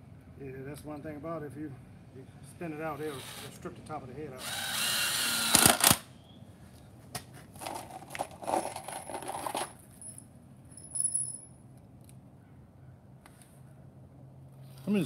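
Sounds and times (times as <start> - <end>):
screws and tools rattling: 7.6 - 10.1.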